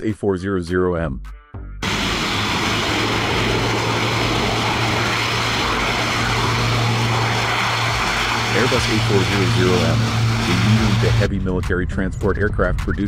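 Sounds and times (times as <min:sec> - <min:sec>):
turboprop engines droning: 0:01.8 - 0:13.0.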